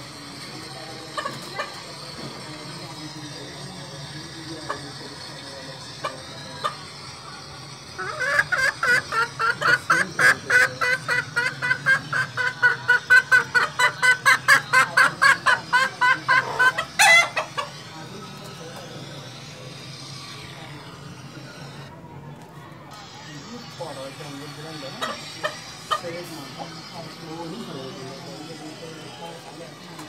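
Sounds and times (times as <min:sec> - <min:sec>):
chicken clucking rapidly: 0:00.7 - 0:02.1, 0:07.7 - 0:21.8, 0:24.4 - 0:27.3
chicken call: 0:08.0 - 0:17.8.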